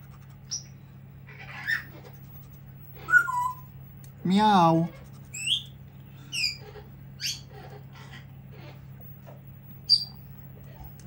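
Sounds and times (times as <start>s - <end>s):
parrot chirping: 0.4s - 2.2s, 3.0s - 3.8s, 5.3s - 8.7s, 9.9s - 10.3s.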